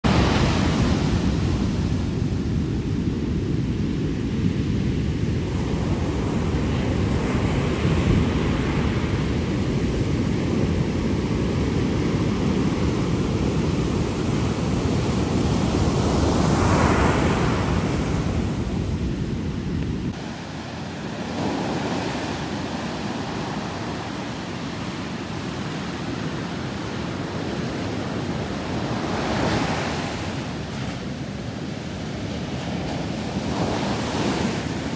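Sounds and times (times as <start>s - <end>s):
wind buffeting microphone: 0.1s - 34.9s
waves breaking: 20.1s - 34.9s.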